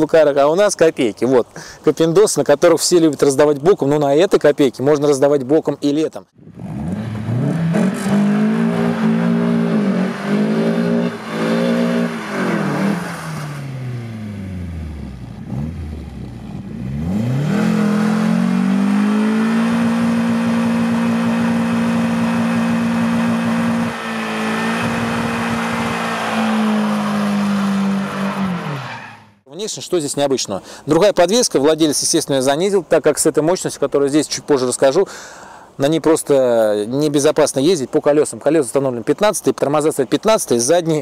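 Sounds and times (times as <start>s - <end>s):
car engine revving: 6.4s - 29.4s.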